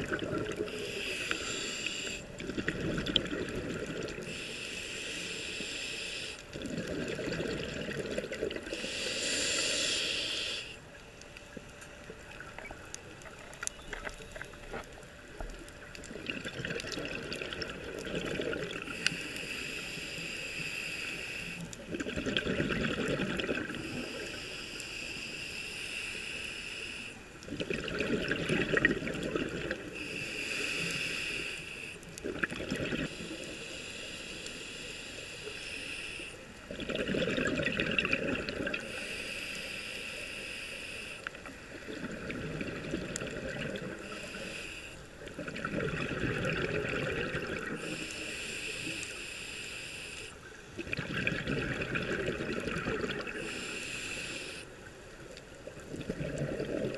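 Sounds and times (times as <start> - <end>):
exhaust bubbles bubbling: 0.0 - 0.7, 2.4 - 4.2, 6.6 - 8.7, 16.1 - 18.9, 21.9 - 23.8, 27.5 - 29.8, 36.7 - 38.8, 45.4 - 47.8, 50.8 - 53.4, 55.8 - 56.9
regulator hiss on inhale: 0.4 - 2.6, 3.4 - 7.0, 8.6 - 12.4, 18.8 - 21.9, 23.6 - 27.5, 29.2 - 32.2, 33.0 - 36.7, 38.0 - 42.4, 43.2 - 45.4, 47.4 - 50.7, 53.0 - 55.8.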